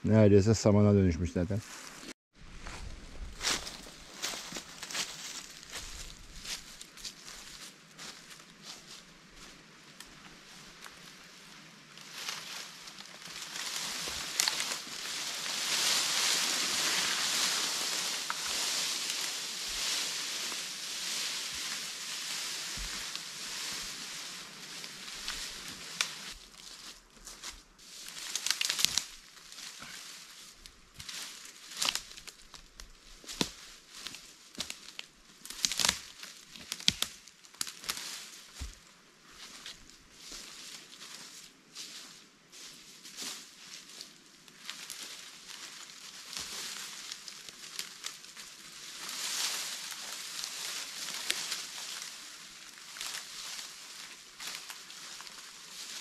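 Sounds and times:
branches dragged over leaves: 1.7s - 38.8s, 39.4s - 56.0s
dry twigs snapping: 12.2s - 20.5s, 25.1s - 26.4s, 28.1s - 29.6s, 31.1s - 33.6s, 34.6s - 38.7s.

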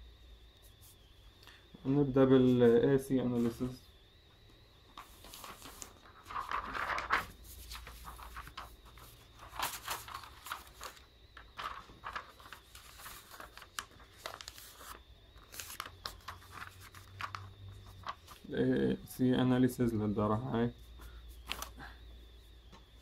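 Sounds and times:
paper rustling: 4.9s - 18.5s, 21.0s - 21.9s
paper crinkle: 4.9s - 18.6s, 20.9s - 22.0s.

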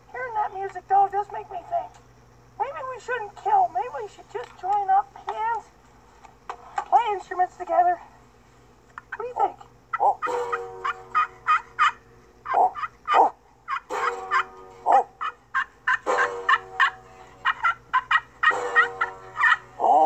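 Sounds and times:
banjo plucked: 10.2s - 12.1s, 13.9s - 20.0s.

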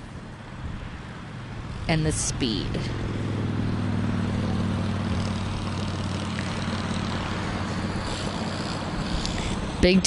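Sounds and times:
go-kart engines idling: 3.7s - 10.0s.

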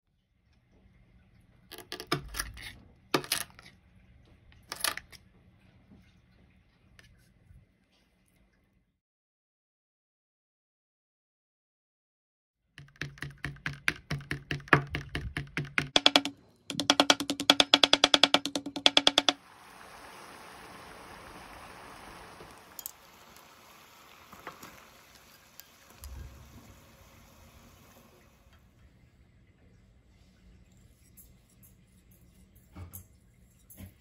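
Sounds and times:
rapid even clicking: 12.8s - 19.4s
water boiling in a pot: 19.4s - 31.6s.

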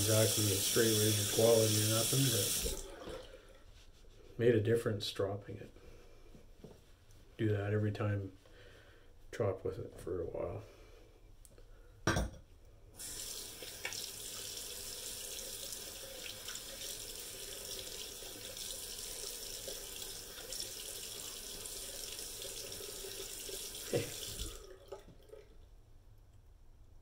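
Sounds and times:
water splashing into sink: 0.0s - 3.4s, 13.0s - 25.5s.

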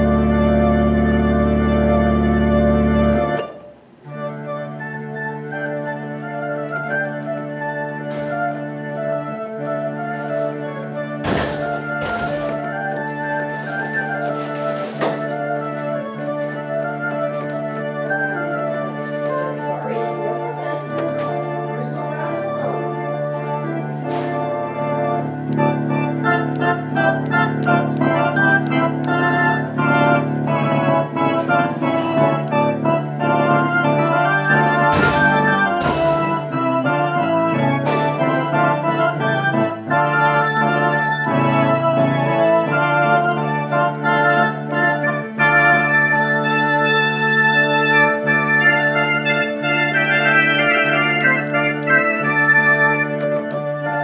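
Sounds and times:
theatre organ playing chords: 0.0s - 54.0s
sharp percussive taps: 11.2s - 13.1s, 33.6s - 41.3s.

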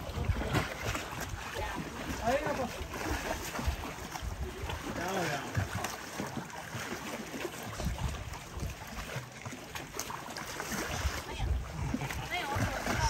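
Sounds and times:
wind buffeting microphone: 0.0s - 5.2s, 10.7s - 13.0s
water lapping: 0.0s - 13.0s.

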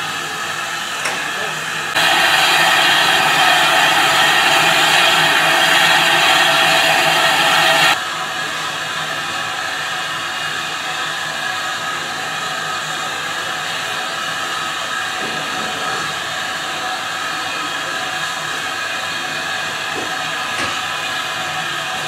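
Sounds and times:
steam hissing from locomotive: 0.0s - 22.0s
steady tones: 2.0s - 8.0s.

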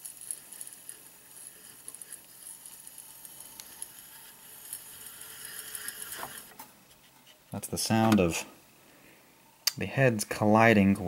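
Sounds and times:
hard drive heads scraping platter: 0.2s - 7.5s.

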